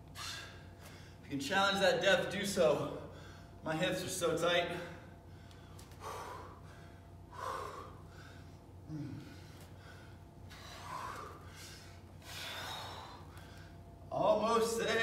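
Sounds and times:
man breathing hard: 0:00.0 - 0:01.3, 0:02.9 - 0:03.6, 0:04.9 - 0:14.1
man grunting: 0:08.9 - 0:09.4.

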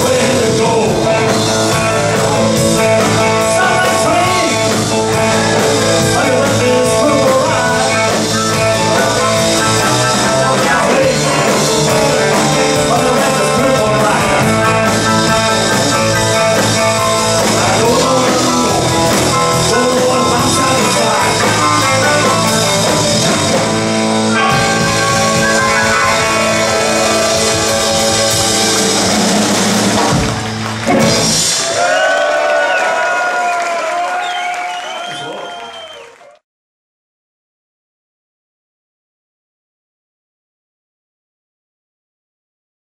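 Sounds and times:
electric guitar: 0:00.0 - 0:31.8
live blues-rock band playing: 0:00.0 - 0:31.9
crowd cheering and applauding: 0:01.2 - 0:36.4.

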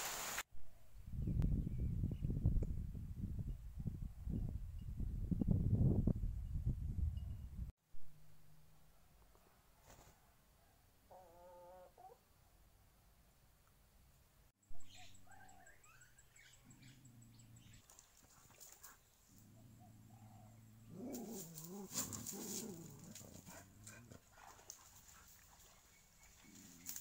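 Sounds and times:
bird chirps: 0:14.7 - 0:18.0.

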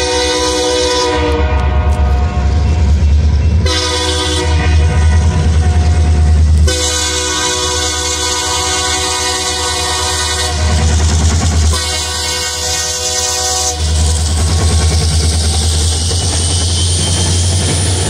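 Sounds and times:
locomotive air horn blasts: 0:00.0 - 0:02.9, 0:03.6 - 0:11.0, 0:11.7 - 0:14.6
locomotive engines rumbling: 0:00.0 - 0:18.0.

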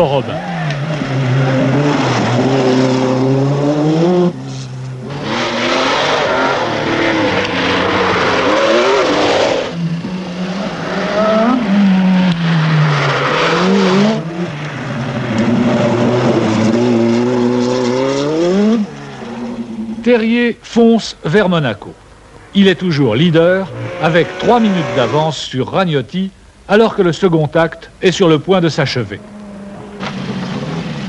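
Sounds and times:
rally car engines at full throttle: 0:00.0 - 0:20.2, 0:23.2 - 0:25.3, 0:29.1 - 0:31.0.

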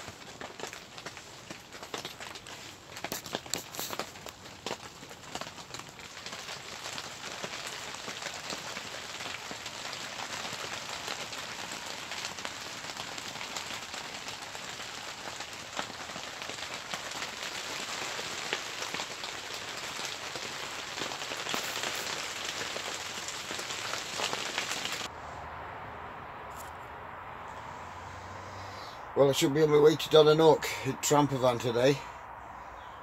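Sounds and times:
heavy rain falling: 0:00.0 - 0:25.1
raindrops striking close by: 0:00.0 - 0:25.1.

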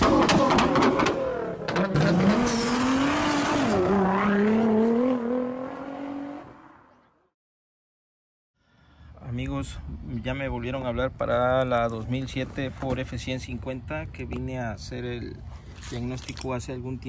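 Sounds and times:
car engine revving: 0:00.0 - 0:06.8.

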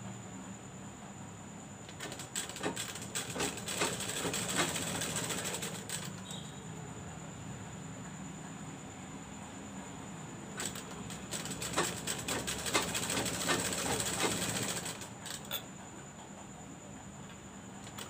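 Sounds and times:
sewing machine low hum: 0:01.8 - 0:06.6, 0:10.6 - 0:15.9
sewing machine needle clicks: 0:01.9 - 0:06.4, 0:10.6 - 0:15.7.

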